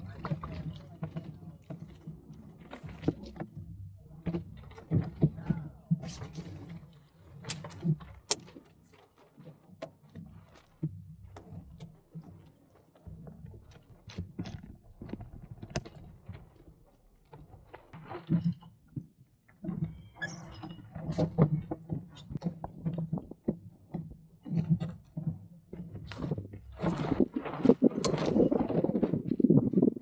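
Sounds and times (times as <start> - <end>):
sailboat rigging clicks and rattles: 0.0 - 30.0
water sloshing against hull: 0.0 - 30.0.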